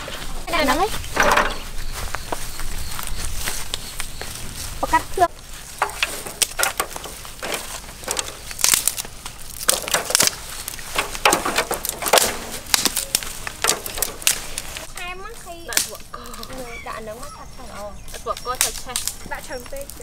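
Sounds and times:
dry twigs snapping: 5.4 - 16.8, 18.0 - 20.0.

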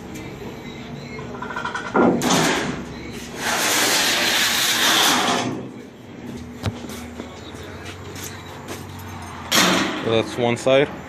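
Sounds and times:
sheet metal scraping: 1.5 - 5.6
heavy metal clunk: 9.5 - 10.1
sharp metal clank: 9.5 - 10.1.

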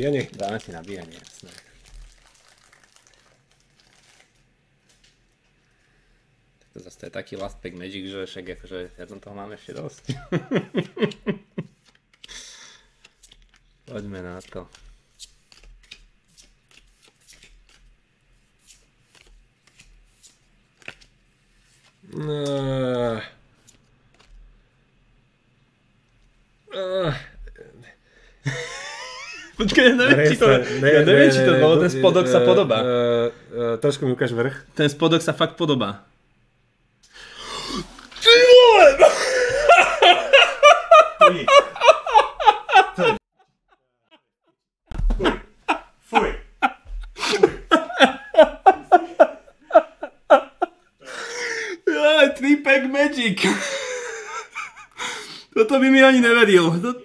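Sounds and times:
man laughing excitedly: 10.1 - 11.7, 28.5 - 32.8, 38.2 - 44.3, 45.0 - 52.2, 53.4 - 55.2
trading cards flicking and sliding: 10.8 - 22.6.

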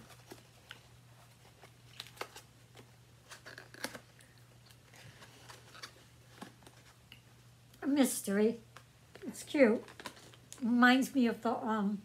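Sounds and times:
plastic package crinkling: 0.0 - 7.1, 9.8 - 10.6
low steady hum: 0.0 - 12.0.

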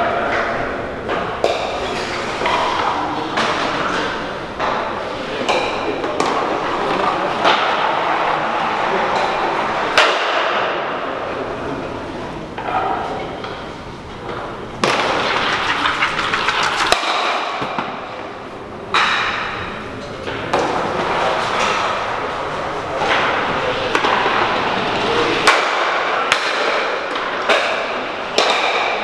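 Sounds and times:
stocks clacking together: 14.8 - 17.7.

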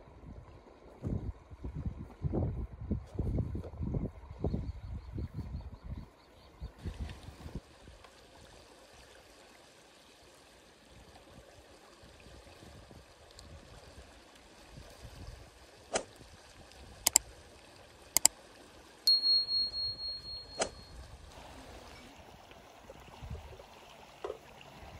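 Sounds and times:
high bell-like ringing tone: 19.1 - 21.2.

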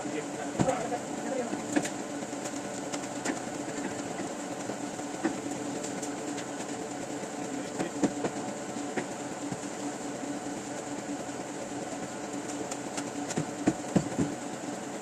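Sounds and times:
machinery hum: 0.0 - 15.0.

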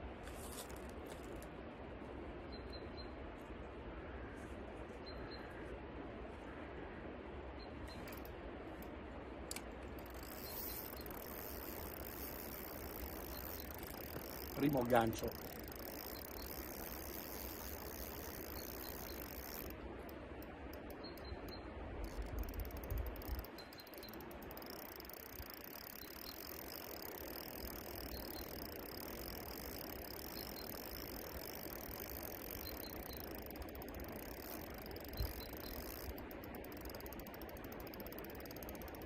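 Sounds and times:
fishing reel clicking: 8.0 - 8.9, 9.5 - 39.0.

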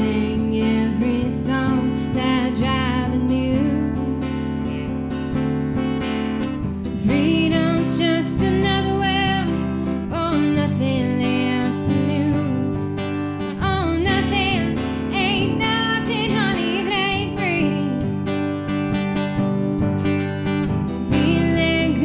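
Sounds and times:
strummed acoustic guitar: 0.0 - 22.0
person singing with vibrato: 6.9 - 18.4, 21.0 - 22.0.

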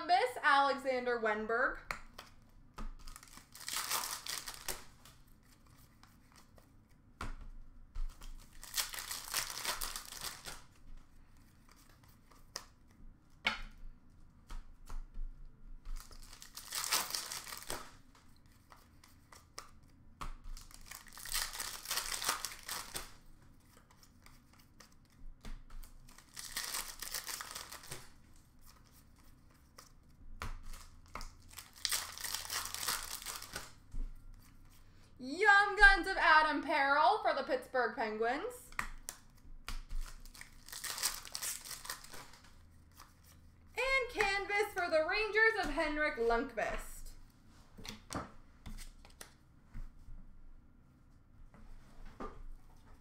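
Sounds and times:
card pack wrappers tearing: 3.0 - 5.1, 8.3 - 10.7, 16.0 - 18.0, 20.6 - 23.2, 26.0 - 28.9, 30.7 - 33.8, 40.0 - 43.1.

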